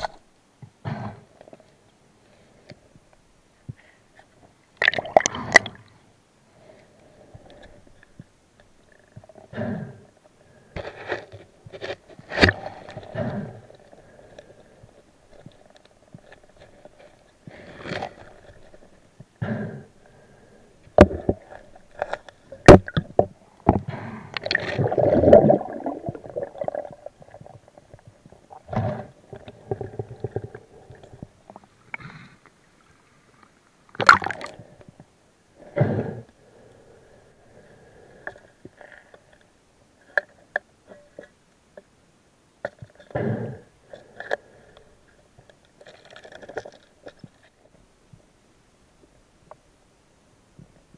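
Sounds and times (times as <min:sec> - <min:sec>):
underwater scraping: 0:21.0 - 0:32.3.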